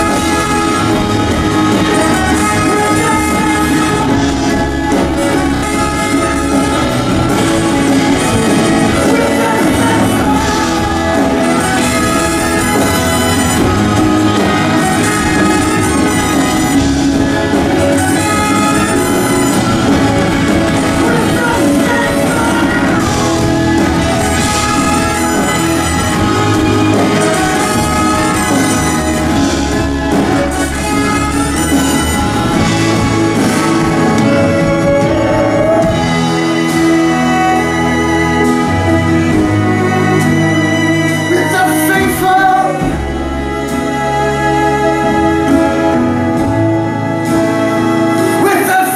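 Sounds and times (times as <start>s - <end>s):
bowed strings long held notes: 0.0s - 48.9s
live folk-rock band playing: 0.0s - 48.9s
violin: 0.0s - 48.9s.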